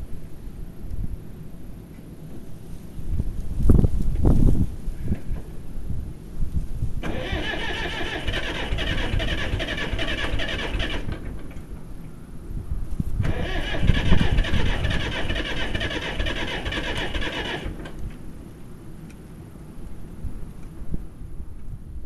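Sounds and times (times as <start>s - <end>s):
starter cranking diesel engine: 7.0s - 11.7s, 13.2s - 18.1s.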